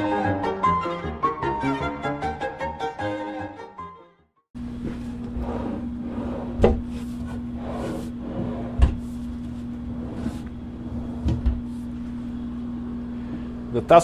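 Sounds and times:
steady hum: 0:04.6 - 0:14.0
wooden drawers sliding: 0:04.9 - 0:11.7.

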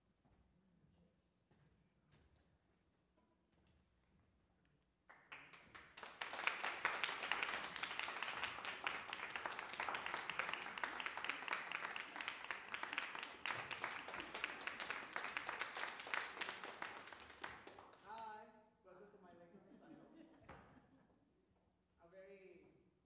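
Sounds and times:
audience applauding: 0:05.3 - 0:18.3.

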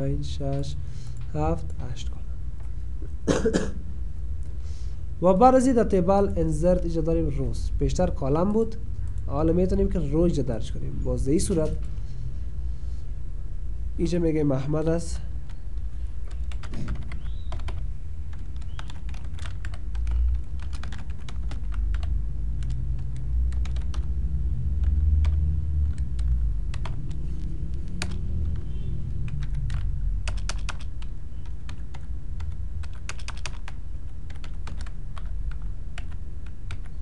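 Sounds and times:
steady low hum: 0:00.0 - 0:37.0
typing on computer keyboard: 0:16.3 - 0:24.2, 0:24.8 - 0:37.0.

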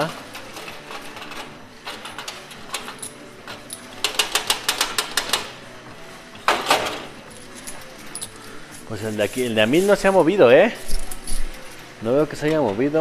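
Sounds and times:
coins clattering: 0:00.0 - 0:05.6, 0:06.5 - 0:11.9
coins clicking: 0:00.0 - 0:05.6, 0:06.5 - 0:10.0, 0:10.8 - 0:11.9.

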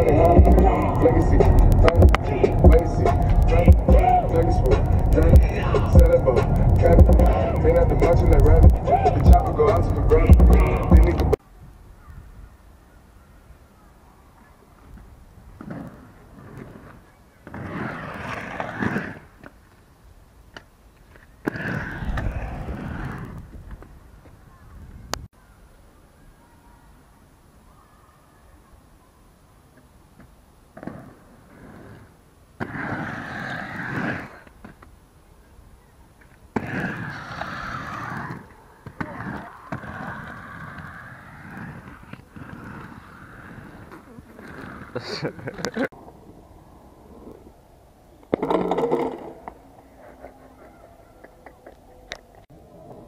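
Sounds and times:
skate wheels clacking: 0:00.0 - 0:11.4, 0:14.8 - 0:19.9, 0:20.5 - 0:24.4, 0:29.8 - 0:35.0, 0:36.1 - 0:45.9, 0:48.2 - 0:53.0
skate wheels rolling on concrete: 0:00.0 - 0:53.0.

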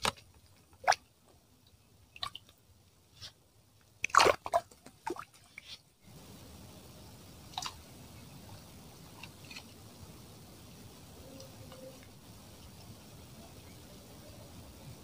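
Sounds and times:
faint hiss: 0:05.3 - 0:15.0.

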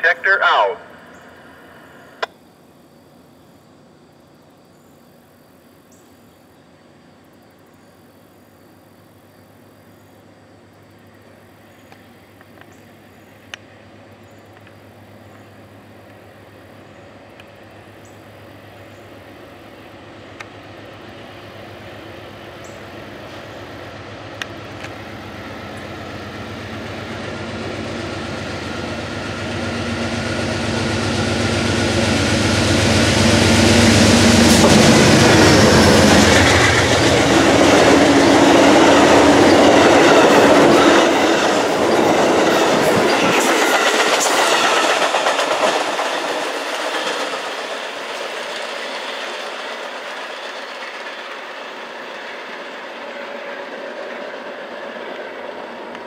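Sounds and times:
diesel locomotive engine passing: 0:00.0 - 0:02.3, 0:06.6 - 0:56.0
train wheels clicking on rail joints: 0:21.8 - 0:56.0.

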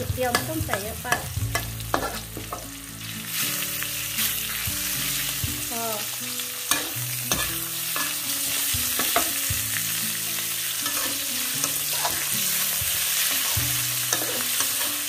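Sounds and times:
meat sizzling in hot oil: 0:00.0 - 0:15.0
metal spatula scraping a pan: 0:01.1 - 0:02.6, 0:06.6 - 0:09.5, 0:10.7 - 0:15.0.

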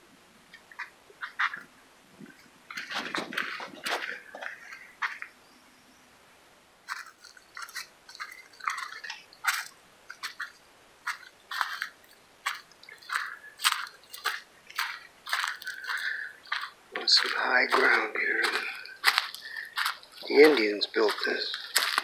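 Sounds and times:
footsteps crunching on leafy trail: 0:02.7 - 0:05.3, 0:06.8 - 0:22.0.

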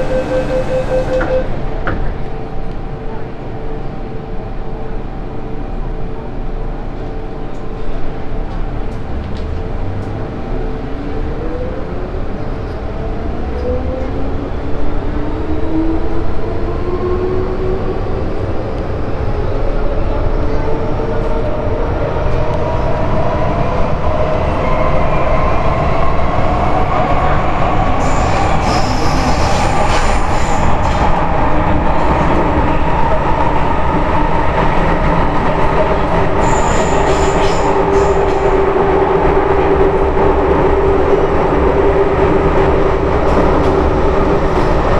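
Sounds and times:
high-pitched squeals: 0:00.0 - 0:01.6
train rumble: 0:00.0 - 0:44.9.

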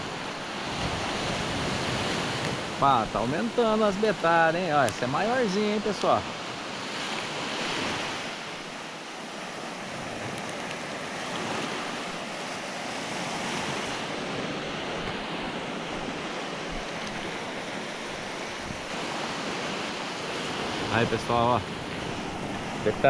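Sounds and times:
wind on microphone: 0:00.0 - 0:02.8, 0:09.8 - 0:23.0
surf washing onto beach: 0:00.0 - 0:23.0.

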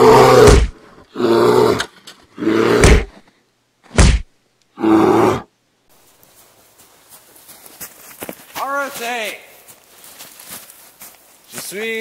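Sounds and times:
man roaring and groaning: 0:00.0 - 0:01.8, 0:02.4 - 0:03.1.

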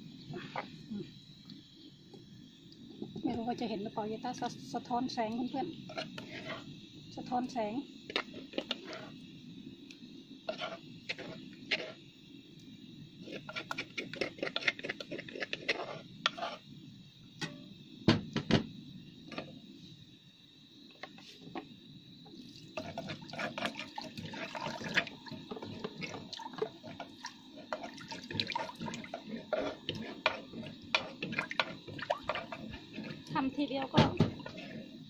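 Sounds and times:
water poured into a pot: 0:22.4 - 0:33.5.

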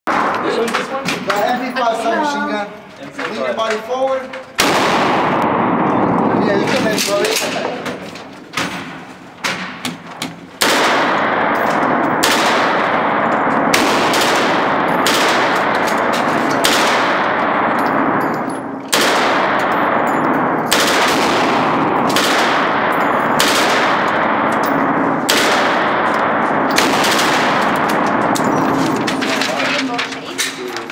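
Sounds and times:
automatic rifle fire: 0:04.6 - 0:07.7, 0:10.5 - 0:29.8.

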